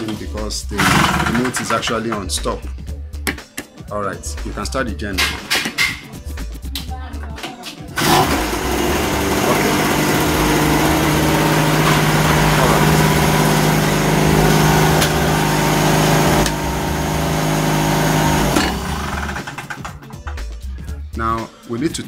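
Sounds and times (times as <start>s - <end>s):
generator engine running: 0.8s - 1.7s, 8.0s - 19.9s.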